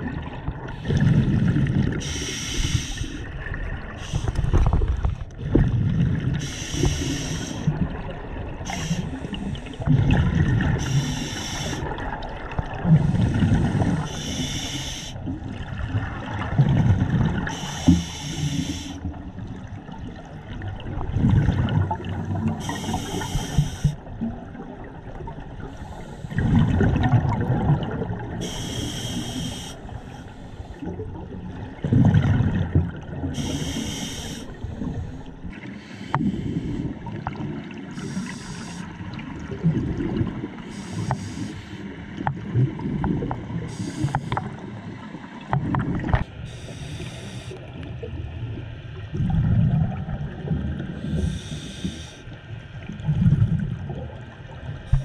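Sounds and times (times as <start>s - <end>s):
regulator hissing inhalations: 2.0s - 3.2s, 6.4s - 7.7s, 8.7s - 9.9s, 10.8s - 11.9s, 13.0s - 15.2s, 17.5s - 19.0s, 22.6s - 24.0s, 25.7s - 26.4s, 28.4s - 30.8s, 33.4s - 36.8s, 38.0s - 38.9s, 40.7s - 41.8s, 43.7s - 44.5s, 46.4s - 47.6s, 51.0s - 52.3s.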